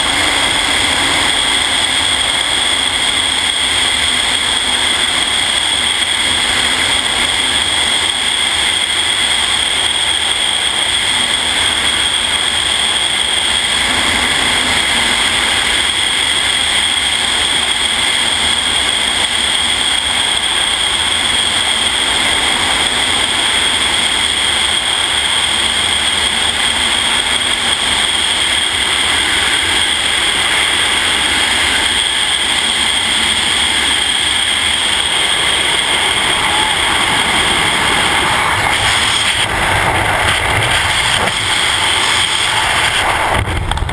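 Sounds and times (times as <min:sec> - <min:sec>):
wind rushing over microphone: 0:25.2 - 0:43.9.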